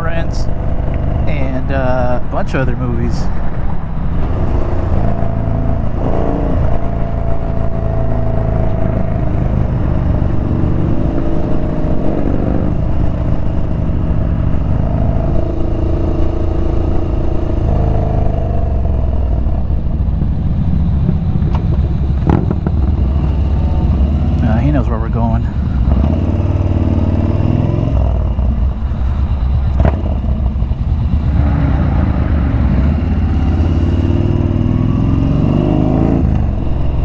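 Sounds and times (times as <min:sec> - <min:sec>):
motorcycle engine revving: 0:00.0 - 0:02.2, 0:03.0 - 0:37.0.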